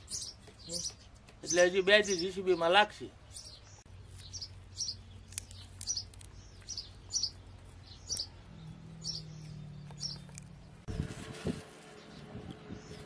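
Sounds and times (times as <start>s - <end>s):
small bird chirping: 0.0s - 10.9s.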